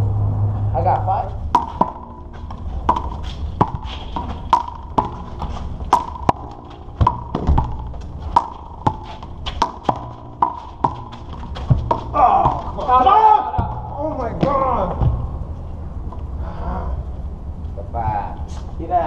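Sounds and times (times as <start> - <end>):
low steady rumble: 0.0 - 19.0
rubber ball smacking wall: 1.5 - 5.3, 5.9 - 12.8.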